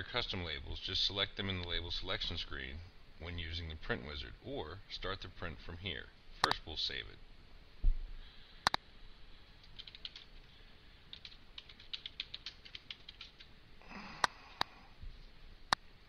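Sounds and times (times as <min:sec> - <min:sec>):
keyboard typing clicks: 0:09.6 - 0:10.3, 0:11.1 - 0:13.5.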